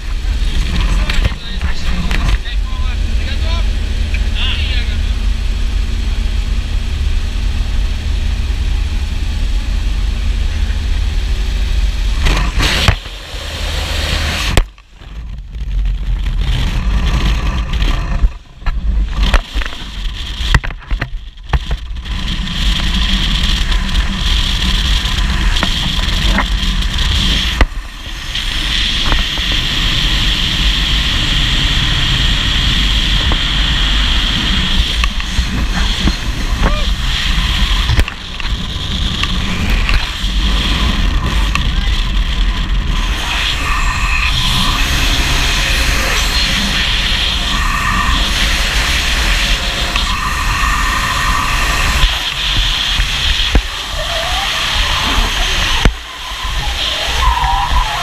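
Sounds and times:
propeller engine droning: 0.0s - 58.0s
wind rushing: 21.4s - 58.0s.

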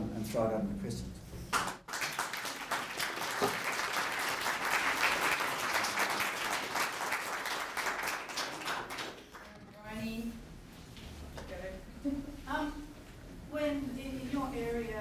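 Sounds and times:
audience applauding: 1.6s - 9.6s.

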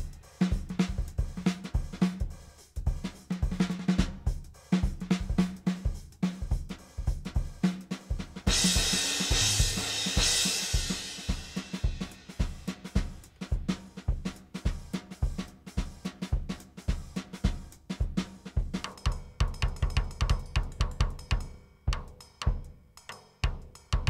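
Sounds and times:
drum kit groove: 0.0s - 24.0s.

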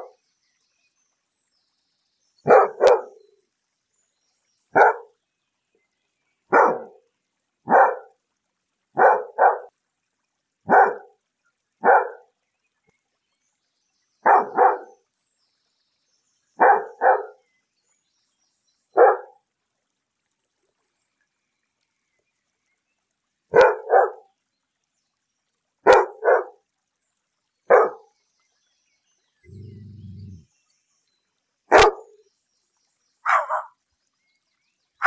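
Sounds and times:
dog barking: 2.5s - 3.2s, 4.8s - 5.1s, 6.5s - 7.0s, 7.7s - 8.1s, 9.0s - 9.7s, 10.7s - 11.1s, 11.8s - 12.2s, 14.2s - 15.0s, 16.6s - 17.4s, 19.0s - 19.4s, 23.5s - 24.2s, 25.8s - 26.6s, 27.7s - 28.0s, 31.7s - 32.2s, 33.2s - 33.8s.

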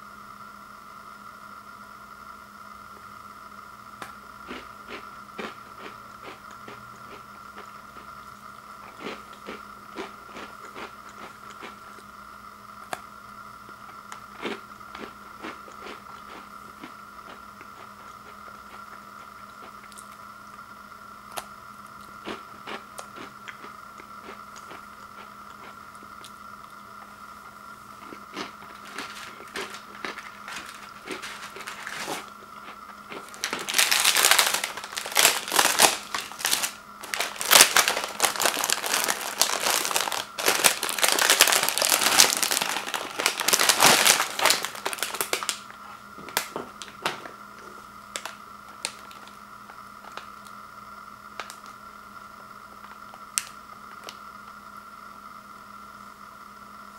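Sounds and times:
plastic package crinkling: 28.4s - 32.3s, 33.1s - 45.7s, 48.1s - 49.4s.

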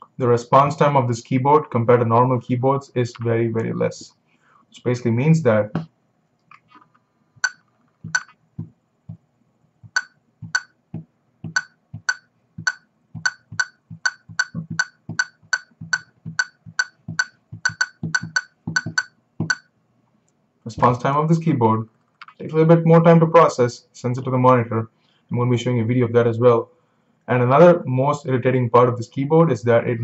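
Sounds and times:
electronic keyboard clicks: 7.4s - 8.4s, 11.4s - 19.7s.

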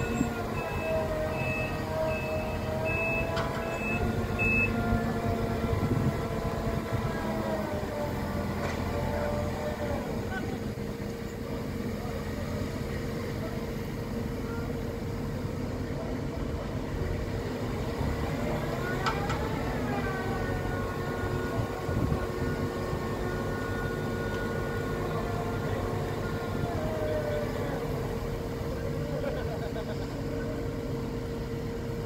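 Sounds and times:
construction machinery rumble: 0.0s - 32.0s.

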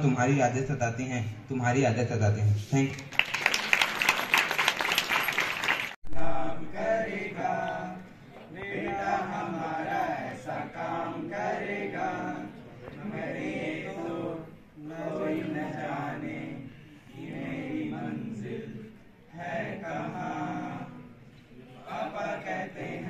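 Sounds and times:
clapping: 2.9s - 6.0s
boys singing into a microphone: 6.1s - 23.0s.

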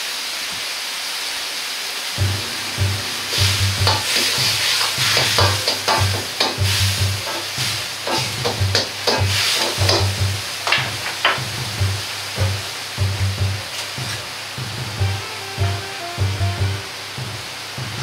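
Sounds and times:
food sizzling: 2.2s - 16.2s
ladle scraping in wok: 3.2s - 10.0s
metal ladle clattering on wok: 3.8s - 10.1s.

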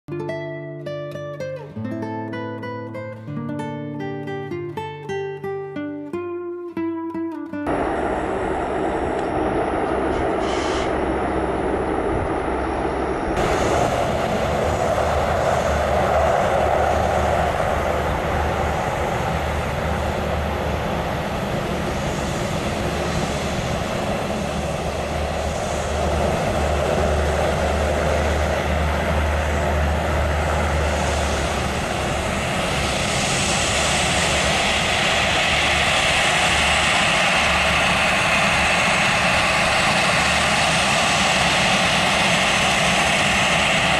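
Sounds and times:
turboprop engines droning: 7.6s - 43.9s
deep rumble: 7.7s - 43.9s.

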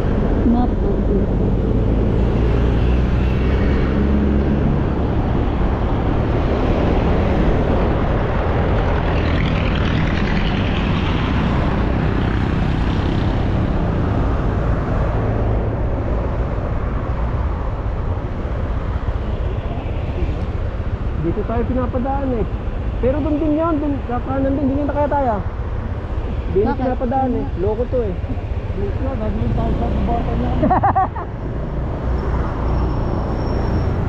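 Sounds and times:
vehicle engine drone: 0.0s - 34.0s
wind and road noise: 0.0s - 34.0s.

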